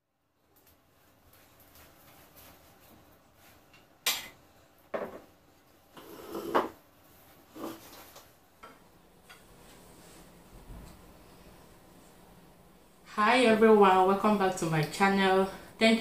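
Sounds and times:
chair moving: 0:06.0 - 0:06.8.

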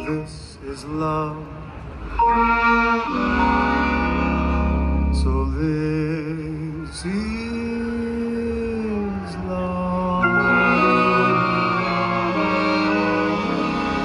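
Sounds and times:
swing band playing slow ballad: 0:02.1 - 0:06.8, 0:10.2 - 0:14.0.

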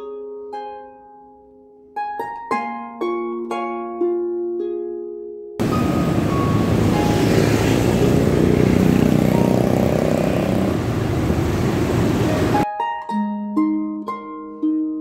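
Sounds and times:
scooter engine running: 0:05.6 - 0:12.6
wind rushing over microphone: 0:05.6 - 0:12.6.

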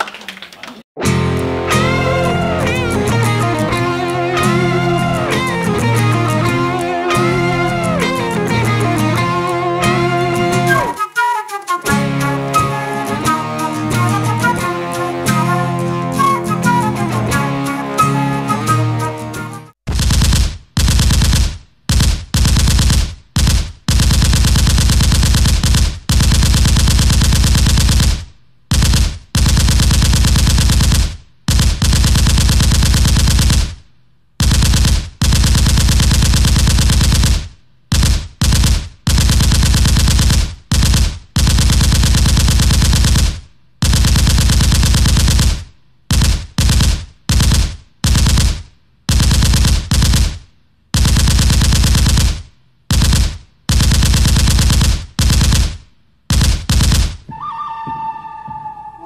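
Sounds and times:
machine-gun fire bursts: 0:19.9 - 0:33.8, 0:34.4 - 0:57.3.

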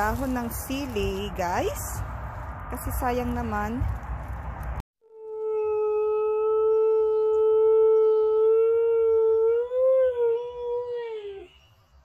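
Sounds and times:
husky howling: 0:05.2 - 0:11.5.

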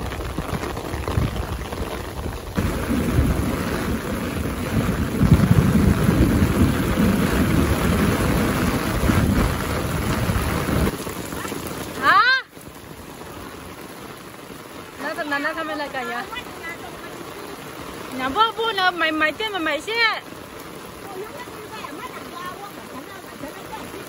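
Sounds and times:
heavy rain pouring: 0:00.0 - 0:24.0
deep rumble: 0:02.6 - 0:10.9.

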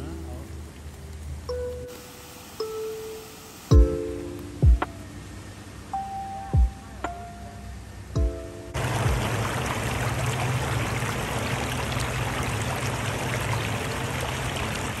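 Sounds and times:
music: 0:01.5 - 0:02.0, 0:02.6 - 0:08.8
waves washing over pebbles: 0:08.8 - 0:15.0.

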